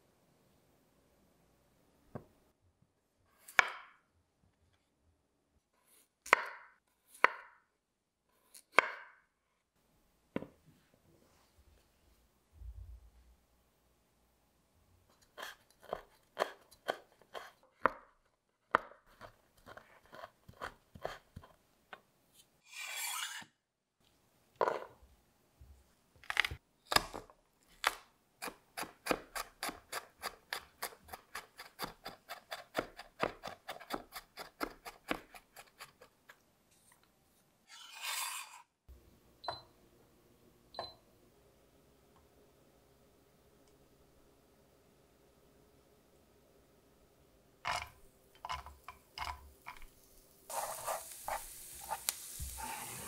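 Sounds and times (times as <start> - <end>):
knife chopping on cutting board: 27.8 - 36.0
brushing sweeps: 37.7 - 38.7, 50.5 - 53.0.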